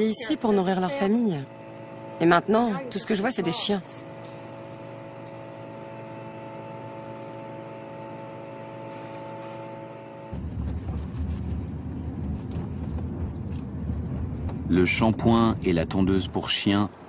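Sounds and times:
steady hum with held tones: 0.0 - 17.0
car engine and tyres rumbling: 10.3 - 16.8.

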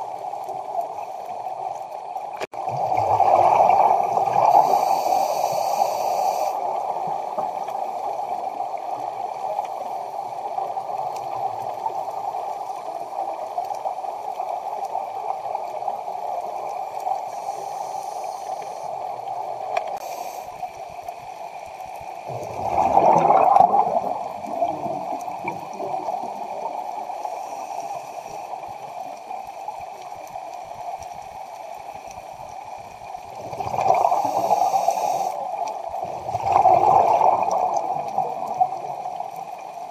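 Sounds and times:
underwater rushing water: 0.0 - 39.9
diver exhaling bubbles: 22.3 - 26.0, 33.4 - 35.2, 36.2 - 38.5.

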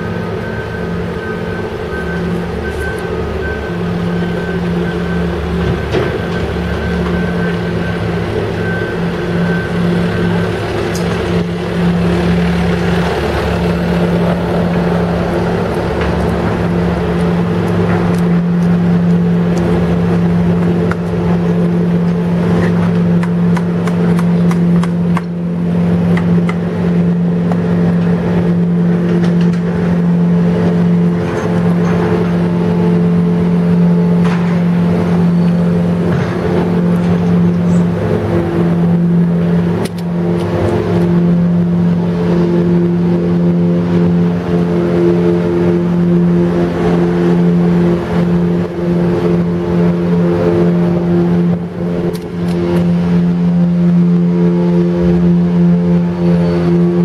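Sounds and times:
diesel machinery droning: 0.0 - 57.0.

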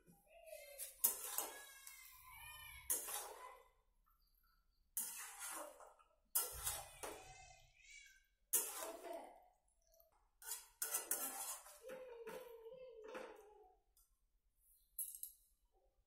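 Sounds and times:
metal spatula scraping steel pot: 0.8 - 2.2, 2.8 - 3.8, 4.9 - 7.4, 8.5 - 9.4, 10.4 - 12.5.

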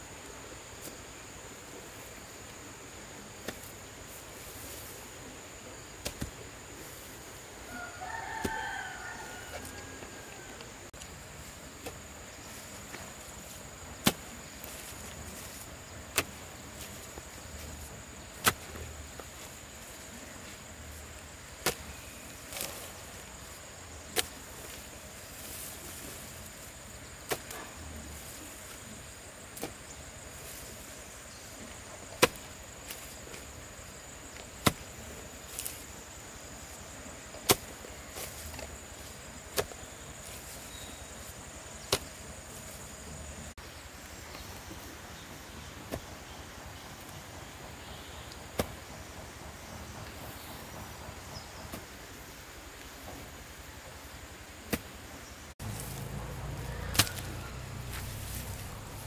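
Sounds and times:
hoe striking soil: 3.4 - 3.7, 6.0 - 6.4, 8.4 - 8.7, 11.7 - 23.2, 24.0 - 28.9, 29.5 - 36.0, 36.6 - 42.8, 47.8 - 50.7, 54.6 - 55.0, 55.6 - 59.0.

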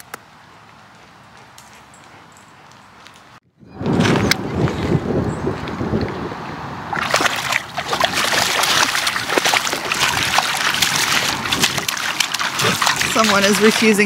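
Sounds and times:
water splashes: 6.9 - 14.0
dog stepping in shallow water: 7.0 - 14.0.

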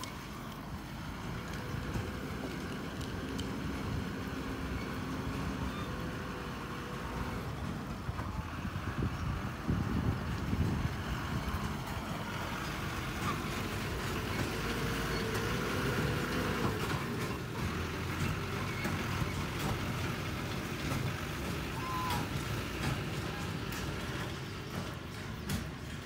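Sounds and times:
truck engine driving past: 0.0 - 26.0
bird calls: 4.8 - 6.4.

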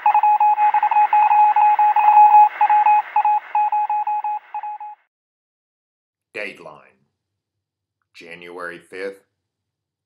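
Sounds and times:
morse code beeping: 0.0 - 5.0.

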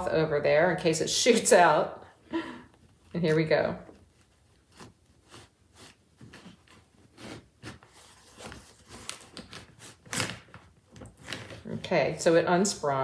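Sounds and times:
cloth rustling: 2.9 - 11.7.

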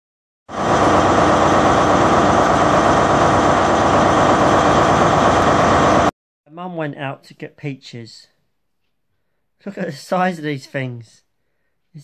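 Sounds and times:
loud steady noise: 0.5 - 6.1.

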